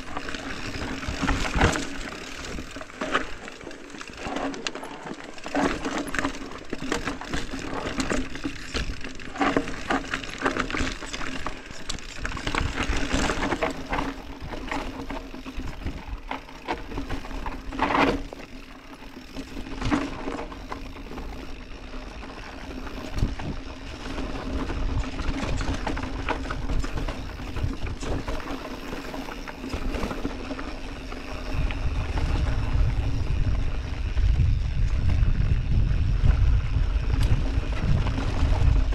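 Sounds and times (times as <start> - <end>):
bike rattling and knocking: 0.0 - 38.9
bike tyres crunching over stones: 0.0 - 38.9
wind rumble on microphone: 22.8 - 28.5, 29.7 - 38.9.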